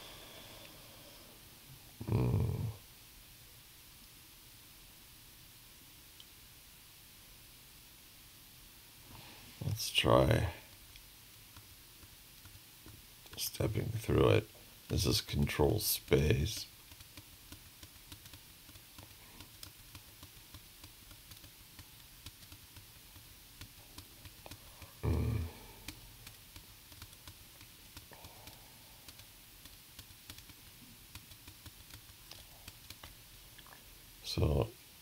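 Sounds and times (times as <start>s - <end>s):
computer keys clicking: 16.5s - 33.1s.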